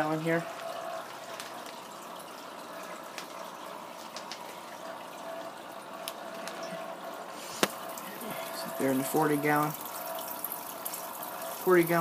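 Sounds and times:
aquarium water trickling: 0.0s - 12.0s
small taps and clicks: 4.0s - 4.6s.

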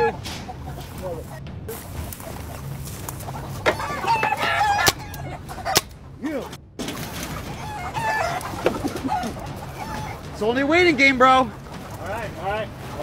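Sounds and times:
chickens clucking: 0.0s - 13.0s
rooster crowing: 3.6s - 5.8s, 7.6s - 10.2s.

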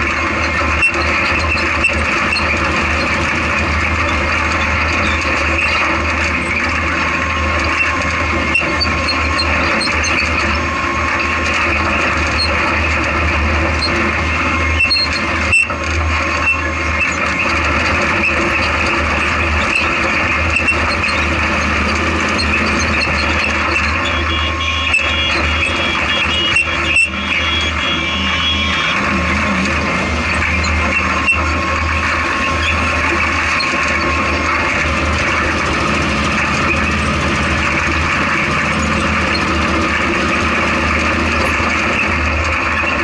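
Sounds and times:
race car engine running: 0.0s - 43.0s.

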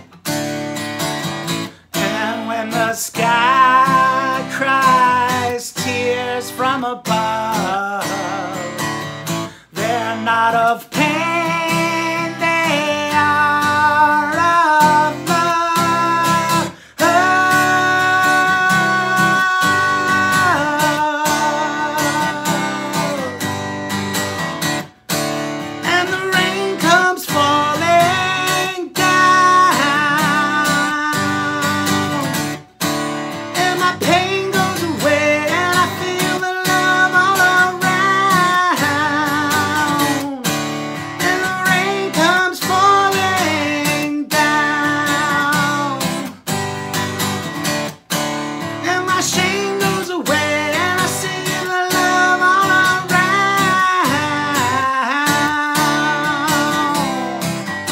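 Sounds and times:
strummed acoustic guitar: 0.0s - 57.9s
man singing: 1.4s - 24.6s, 25.5s - 47.7s, 48.4s - 57.9s.

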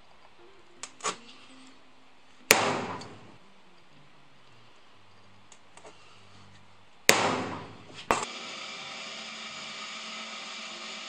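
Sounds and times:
hammer striking center punch: 2.5s - 3.4s, 7.1s - 8.3s
drill press running: 7.6s - 11.0s.

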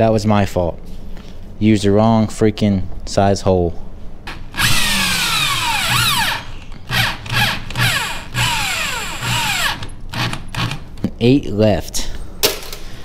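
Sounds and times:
power drill driving screws: 4.3s - 10.8s.

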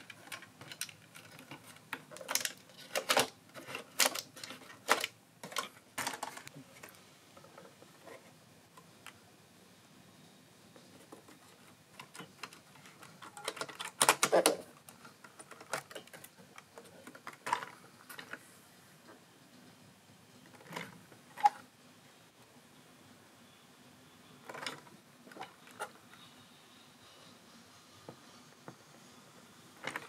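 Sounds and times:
small objects clicking and rattling: 0.0s - 7.0s.

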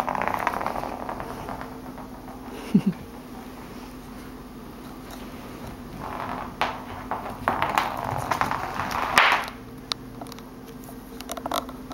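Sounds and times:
ball knocking on floor: 0.0s - 3.4s, 5.6s - 9.6s.

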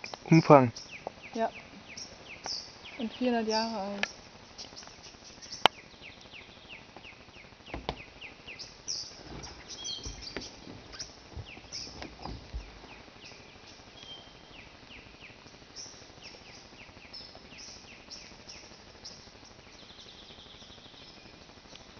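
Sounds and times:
small birds chirping: 0.0s - 21.9s
low thumps: 7.7s - 13.1s.

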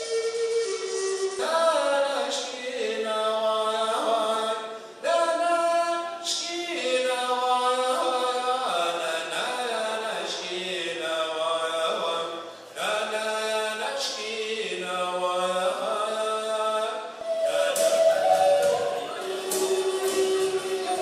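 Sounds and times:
wooden flute note: 0.0s - 1.5s, 17.2s - 21.0s
man singing unaccompanied: 0.0s - 21.0s.

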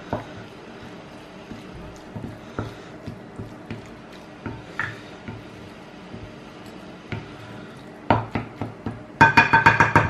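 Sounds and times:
wet squishing of stirred pasta: 0.0s - 9.1s
spoon tapping glass bowl: 9.2s - 10.0s.

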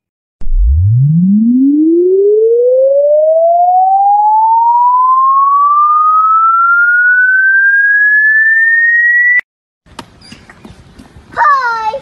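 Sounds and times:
rising electronic tone: 0.4s - 9.4s.

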